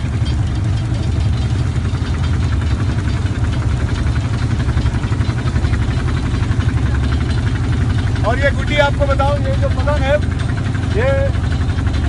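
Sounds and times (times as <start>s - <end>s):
engine idling: 0.0s - 12.0s
faint regular ticking: 0.0s - 12.0s.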